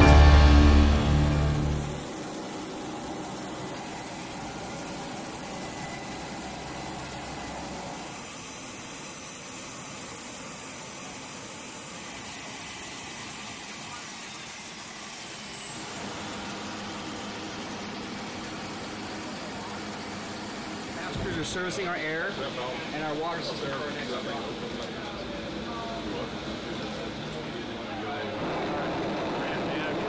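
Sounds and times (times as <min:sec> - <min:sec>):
thin high whine: 0:00.0 - 0:02.4
aircraft turbine rush: 0:00.0 - 0:09.0, 0:11.3 - 0:30.0.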